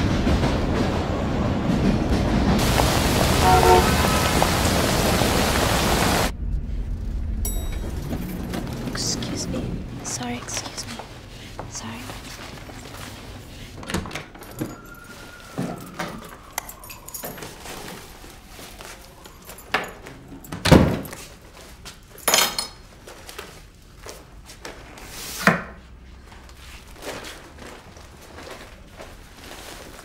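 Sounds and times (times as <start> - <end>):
keys jangling: 15.9 - 17.8.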